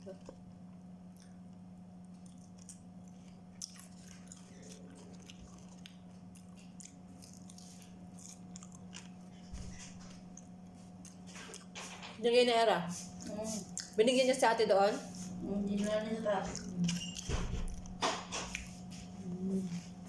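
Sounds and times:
steady low hum: 0.0 - 20.0
crunchy chewing: 1.1 - 11.8, 15.3 - 19.1.

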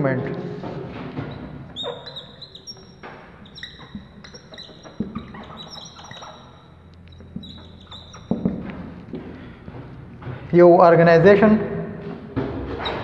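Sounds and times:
marker squeaking on whiteboard: 1.0 - 10.2, 12.8 - 13.0.

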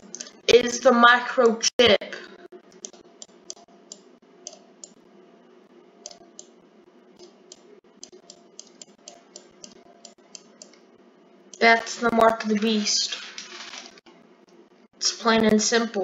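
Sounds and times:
low steady hum: 0.0 - 16.0
computer mouse clicks: 2.7 - 5.0, 6.0 - 6.6, 7.2 - 10.9.

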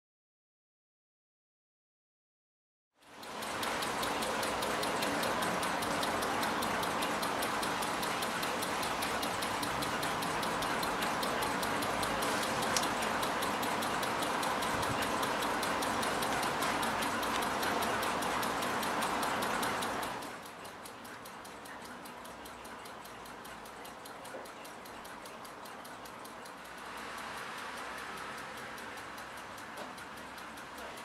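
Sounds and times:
clock ticking rapidly: 3.0 - 31.0.

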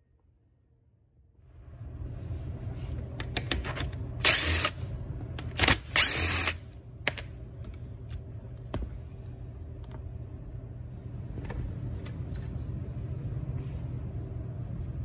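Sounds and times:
cordless drill spinning screws: 5.6 - 6.6.

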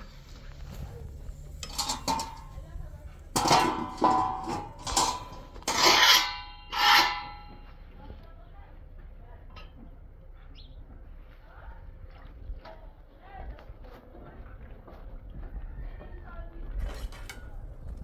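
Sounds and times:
metal griddle clanging: 1.3 - 7.7.

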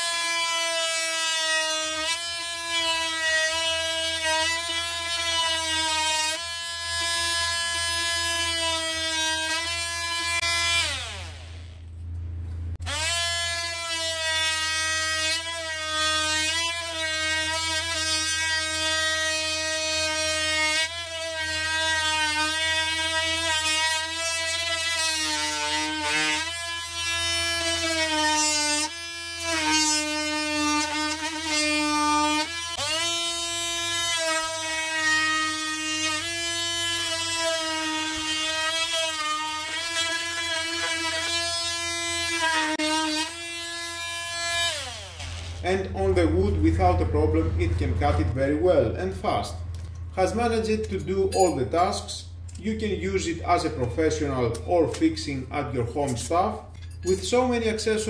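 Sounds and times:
oscillating multi-tool cutting wood: 0.0 - 11.8, 12.8 - 48.2.

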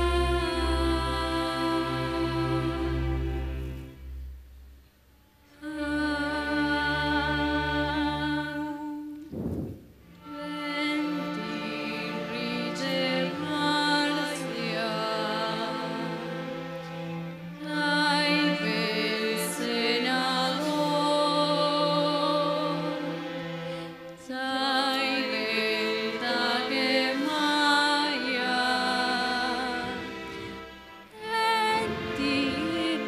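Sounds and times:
string orchestra playing chords: 0.0 - 4.7, 5.5 - 33.0.

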